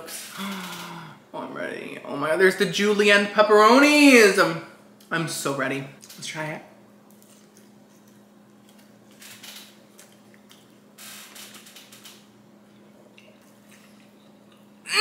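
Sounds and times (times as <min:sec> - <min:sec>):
chewing with soft crunches: 0:07.1 - 0:09.2, 0:09.9 - 0:10.9, 0:12.6 - 0:14.8.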